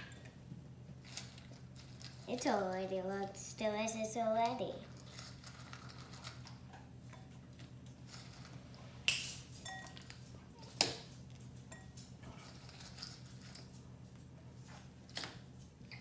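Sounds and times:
low steady hum: 0:00.0 - 0:16.0
glass dishware clinks: 0:09.6 - 0:10.0.

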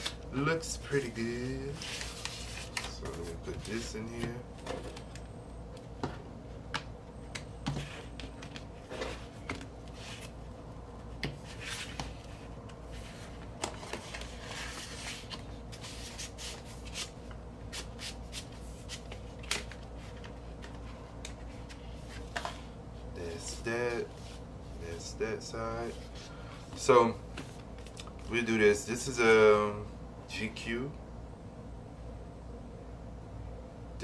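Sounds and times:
paper sleeve rustling: 0:00.8 - 0:04.1.

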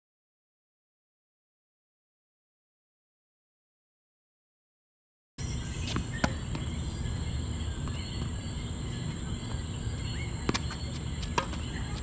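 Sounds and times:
insects chirring: 0:05.4 - 0:12.0
tennis ball bouncing: 0:05.4 - 0:12.0
racket hitting tennis ball: 0:05.5 - 0:07.1, 0:10.4 - 0:12.0.

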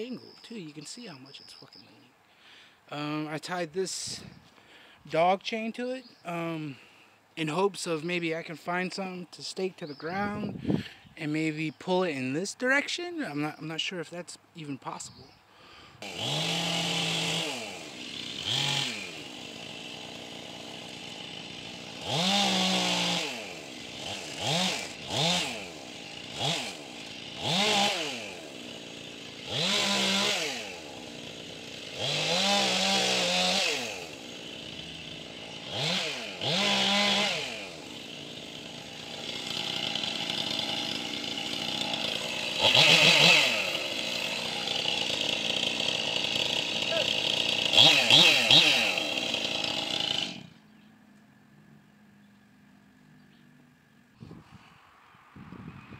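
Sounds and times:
chainsaw idling and revving: 0:16.0 - 0:50.7.

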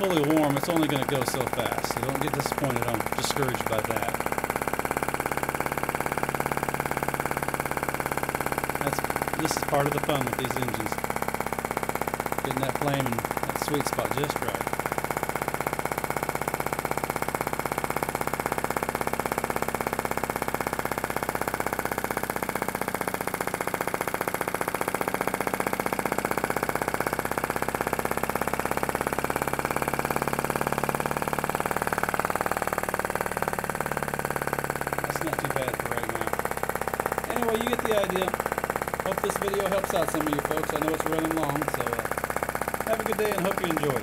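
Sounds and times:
small engine clattering: 0:00.0 - 0:44.0.

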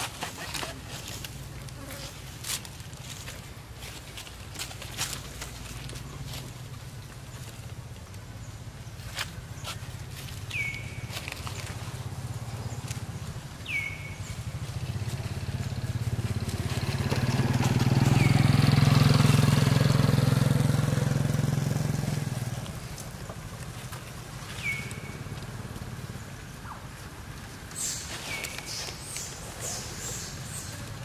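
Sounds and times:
vehicle engine passing: 0:10.0 - 0:31.0.

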